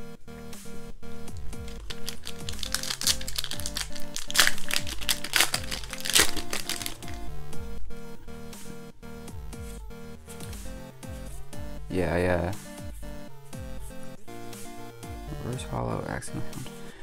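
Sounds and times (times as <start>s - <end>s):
lo-fi chiptune background music: 0.0s - 17.0s
plastic wrapper tearing and crinkling: 1.6s - 7.2s.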